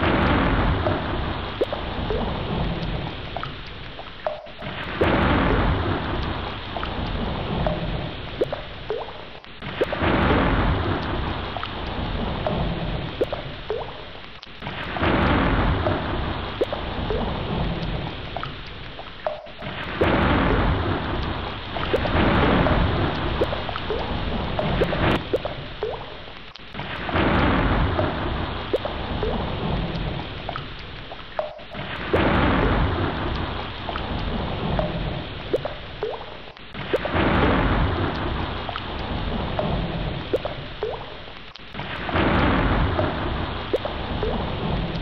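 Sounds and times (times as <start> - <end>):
rumbling thunder: 0.0 - 3.2, 4.6 - 8.2, 9.6 - 13.6, 14.7 - 18.2, 19.6 - 25.7, 26.8 - 30.3, 31.5 - 35.6, 36.8 - 40.6, 41.8 - 45.0
heavy rain: 0.0 - 45.0.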